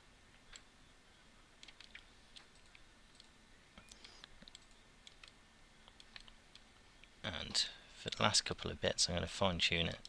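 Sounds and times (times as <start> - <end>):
computer mouse and keyboard clicks: 1.6 - 6.7.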